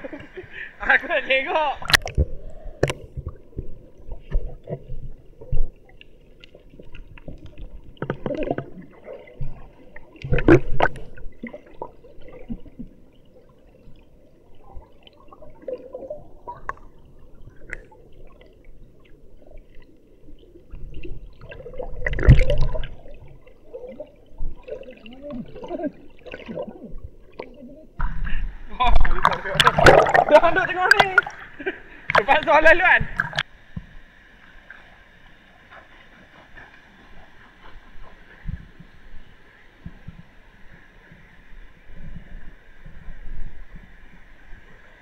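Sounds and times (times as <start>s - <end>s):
water rushing: 0.0s - 45.0s
muffled underwater gurgling: 20.9s - 33.4s.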